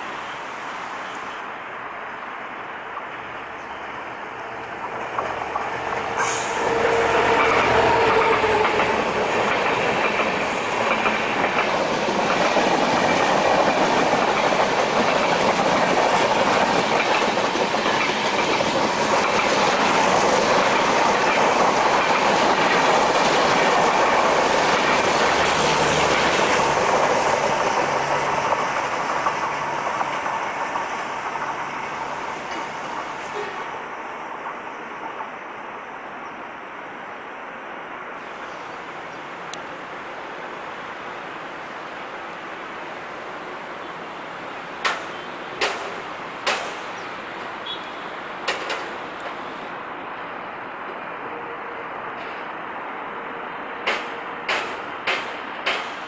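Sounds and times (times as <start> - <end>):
train wheels clacking on rails: 4.2 - 35.5, 44.8 - 49.5, 53.8 - 56.0.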